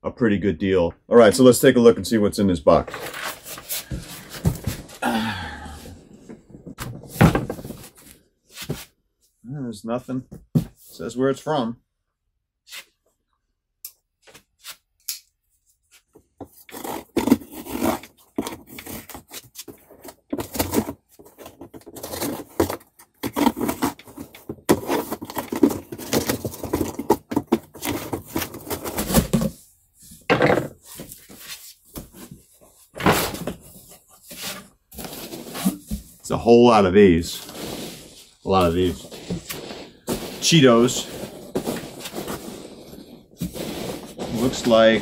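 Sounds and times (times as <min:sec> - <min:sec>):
knife slitting tape and cardboard: 0:15.9 - 0:29.4.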